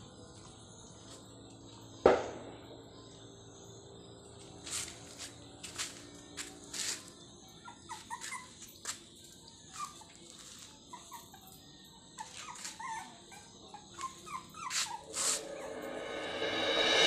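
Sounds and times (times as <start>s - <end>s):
puppies whimpering and squeaking: 6.7s - 15.7s.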